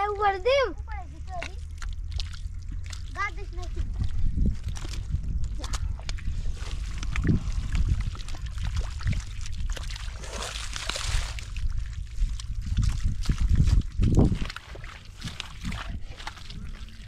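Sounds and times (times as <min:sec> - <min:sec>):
steady low rumble: 0:00.0 - 0:17.0
water pouring and trickling: 0:00.0 - 0:17.0
water sloshing and splashing: 0:00.0 - 0:17.0.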